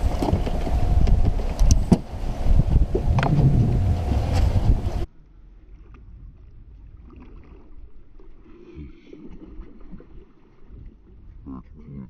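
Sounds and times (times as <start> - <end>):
loud rushing noise with hum: 0.0 - 5.1
water sloshing around boat: 0.0 - 11.9.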